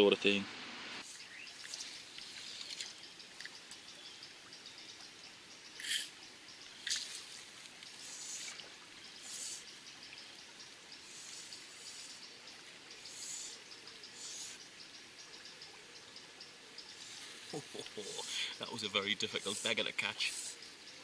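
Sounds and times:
fly line hissing through rings: 0:05.7 - 0:10.3, 0:10.9 - 0:14.7, 0:16.9 - 0:20.8.

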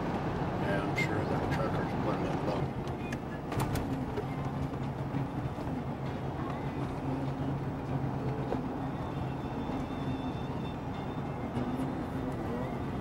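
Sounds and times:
car engine drone: 0:00.0 - 0:13.0.

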